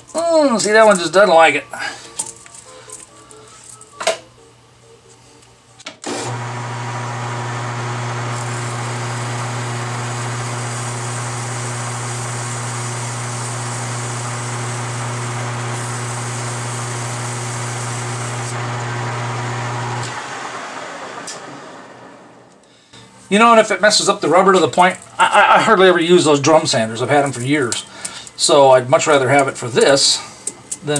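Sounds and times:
metal lathe motor hum: 6.3s - 22.1s.

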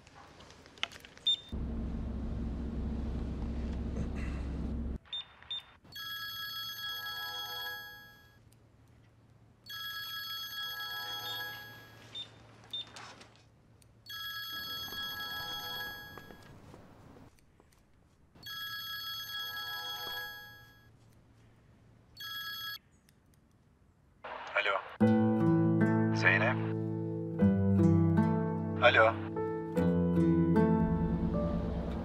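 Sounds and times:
low buzz: 1.6s - 5.0s
smartphone ringtone: 5.9s - 8.4s, 9.7s - 12.2s, 14.1s - 16.5s, 18.4s - 20.9s, 22.2s - 22.8s.

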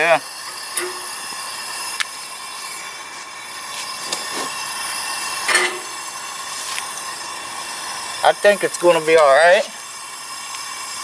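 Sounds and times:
gas burner hissing: 0.0s - 11.0s
gas cylinder click: 0.5s - 1.2s.

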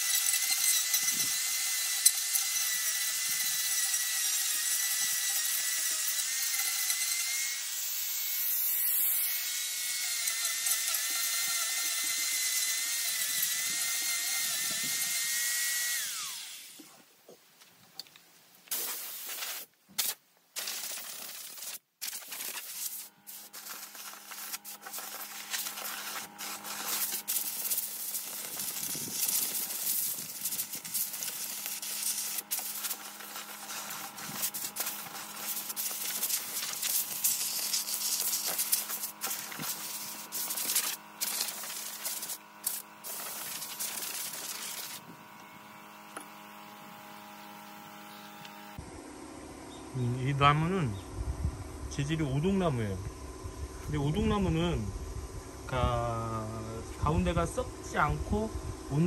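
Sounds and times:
electric sander grinding wood: 0.0s - 16.9s, 22.4s - 48.9s.

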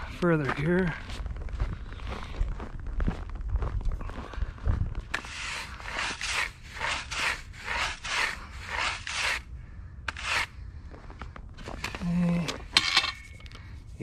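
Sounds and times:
footsteps crunching on snow: 0.0s - 7.8s.

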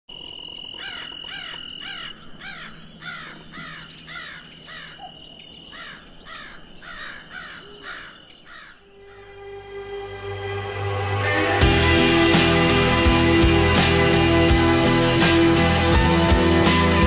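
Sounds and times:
bird calling: 0.2s - 9.4s.

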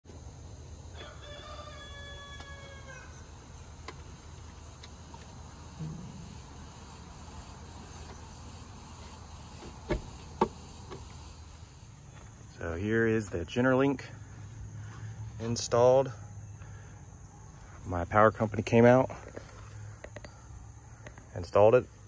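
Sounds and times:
insects chirring: 0.0s - 22.0s
low hum: 4.2s - 12.6s.

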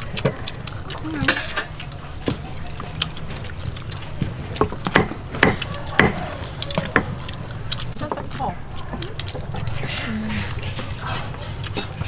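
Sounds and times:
cleaver chopping on wooden board: 4.6s - 7.1s.

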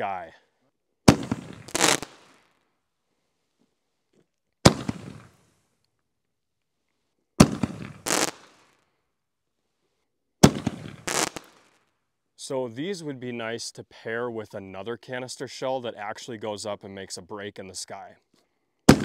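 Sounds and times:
firework mortar bangs: 1.1s - 2.4s, 4.6s - 5.4s, 7.4s - 8.6s, 10.4s - 11.6s
firework crackle: 1.1s - 2.5s, 4.7s - 5.4s, 7.4s - 8.8s, 10.4s - 11.8s.

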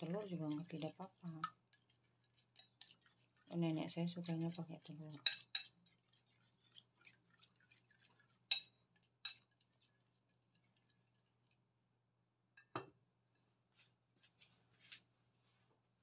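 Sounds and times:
chopsticks clinking in bowl: 5.1s - 5.8s.

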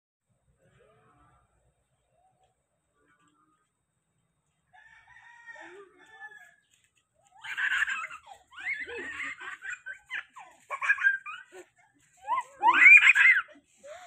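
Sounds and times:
child giggling and squealing: 7.4s - 14.0s.

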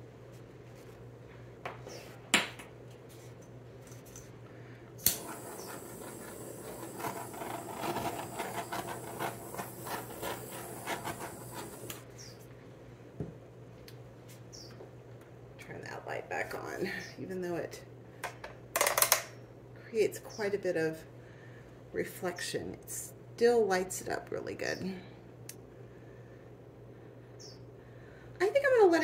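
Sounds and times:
steady low hum: 0.0s - 18.2s
sharp clicks: 5.0s - 5.8s
faint high whine: 5.0s - 12.4s
rattling and rustling: 5.2s - 12.0s.

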